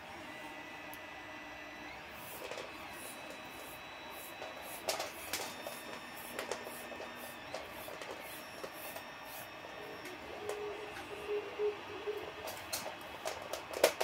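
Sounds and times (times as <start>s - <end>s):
hands handling parts clicking: 12.4s - 14.0s.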